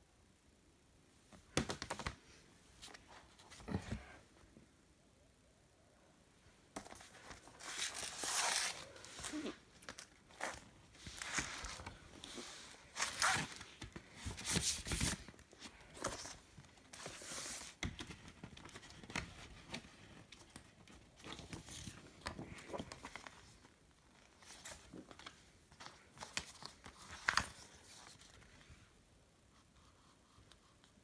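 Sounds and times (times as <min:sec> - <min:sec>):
paper and card rustling: 0:06.7 - 0:28.6.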